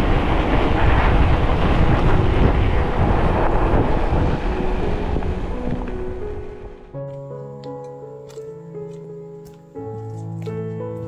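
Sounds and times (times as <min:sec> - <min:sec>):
wind buffeting microphone: 0:00.0 - 0:07.0.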